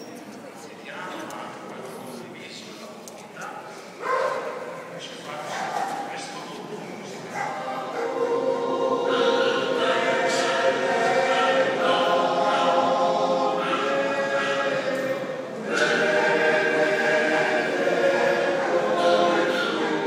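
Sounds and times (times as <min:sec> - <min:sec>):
congregation singing a hymn: 0:07.0 - 0:20.0.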